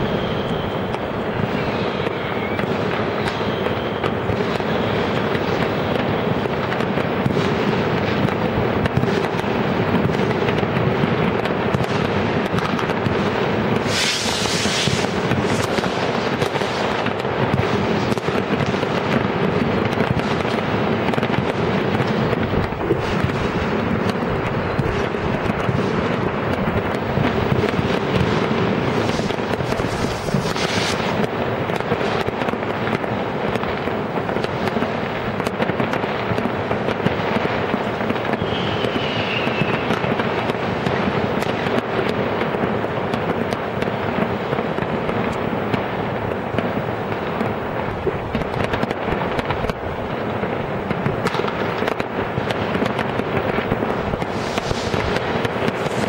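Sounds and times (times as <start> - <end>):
falling firework whistle: 0.0 - 7.6, 13.7 - 18.7, 27.4 - 32.2, 38.1 - 41.8, 52.5 - 56.0
firecrackers crackling and banging: 0.0 - 56.0.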